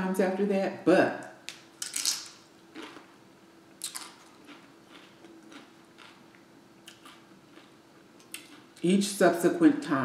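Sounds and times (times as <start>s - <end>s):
tortilla chip crunching: 1.8s - 3.2s, 3.8s - 8.8s.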